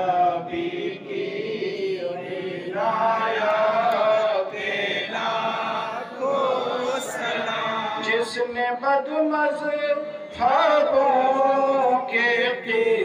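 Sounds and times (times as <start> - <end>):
man chanting into a microphone: 6.0 - 13.0.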